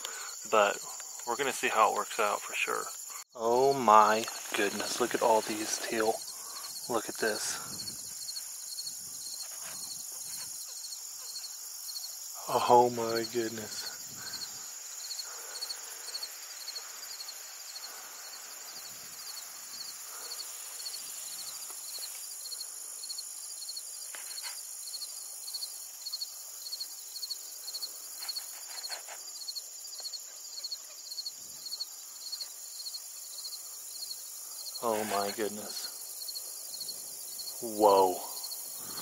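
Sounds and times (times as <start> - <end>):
insects trilling: 0.0 - 39.0
pulsed insect call: 0.0 - 39.0.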